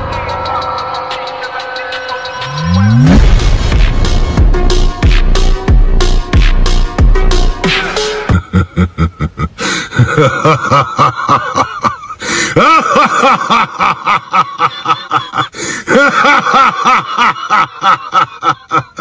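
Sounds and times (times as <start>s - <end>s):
man laughing loudly: 7.6s - 19.0s.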